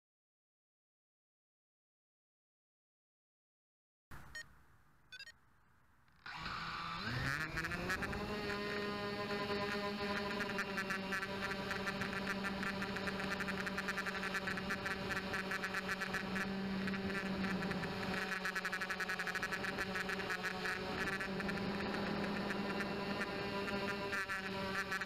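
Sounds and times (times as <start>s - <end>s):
quadcopter propellers whirring: 6.2s - 25.0s.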